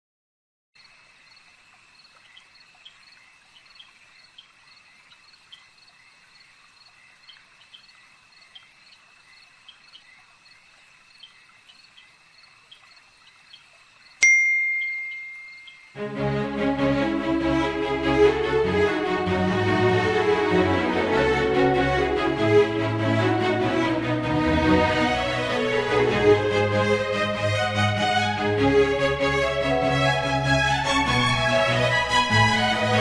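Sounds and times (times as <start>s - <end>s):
night insects chirping: 0.8s - 14.2s, 14.8s - 16.0s
phone notification ding: 14.2s - 16.0s.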